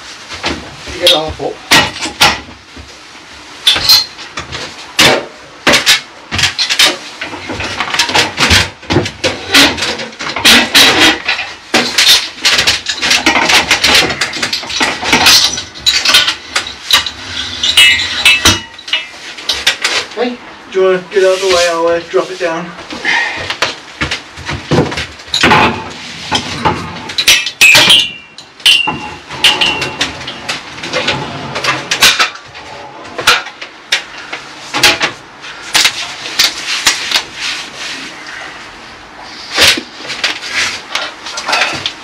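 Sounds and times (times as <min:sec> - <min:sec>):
clanks and knocks: 0:00.4 - 0:02.9, 0:03.6 - 0:20.1, 0:23.4 - 0:37.3, 0:39.6 - 0:42.0
ringing metallic clangs: 0:12.9 - 0:19.2, 0:26.4 - 0:30.4.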